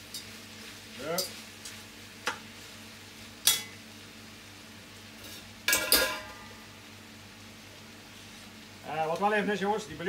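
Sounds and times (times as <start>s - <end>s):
utensil clattering in pot: 5.7s - 6.4s.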